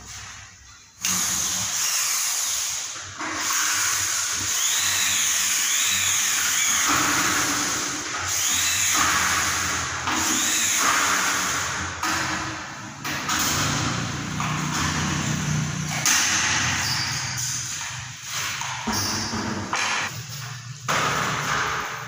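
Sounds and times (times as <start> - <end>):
power drill running: 1.0 - 11.9.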